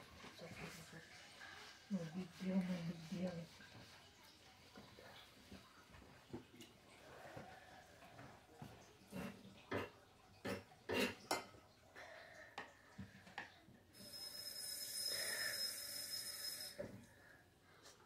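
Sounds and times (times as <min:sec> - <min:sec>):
high hiss with thin whistle: 0:14.1 - 0:16.8.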